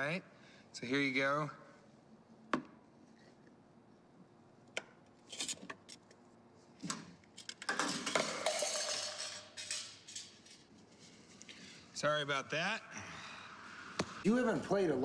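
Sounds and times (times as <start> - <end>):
cup rattling and rolling: 7.4 - 10.7
cup clattering on concrete: 7.7 - 10.0.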